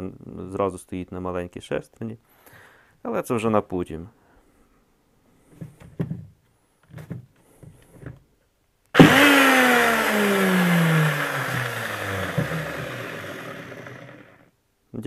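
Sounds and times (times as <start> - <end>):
angle grinder motor whine: 9.0 - 14.4.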